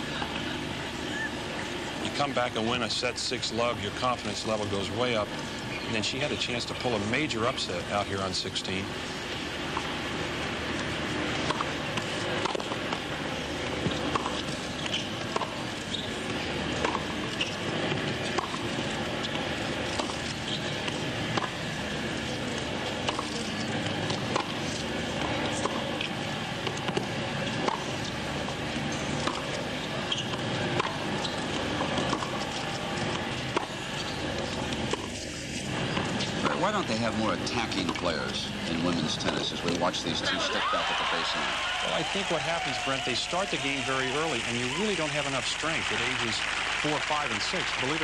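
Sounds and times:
tennis ball struck by rackets: 11.4 - 13.0, 13.8 - 14.5, 23.0 - 27.9, 33.5 - 33.8.

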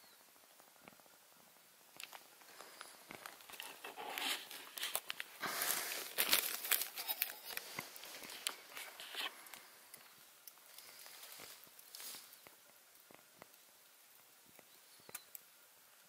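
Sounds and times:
crinkling and crunching: 1.9 - 13.7.

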